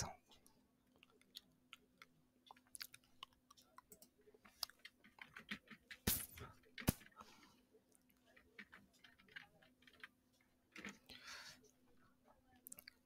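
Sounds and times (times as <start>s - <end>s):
keyboard typing: 2.4s - 6.0s.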